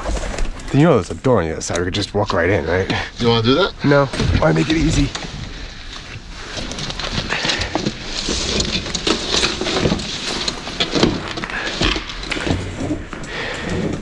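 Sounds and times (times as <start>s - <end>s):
people scrambling through brush: 3.8s - 13.9s
handling noise: 3.8s - 14.0s.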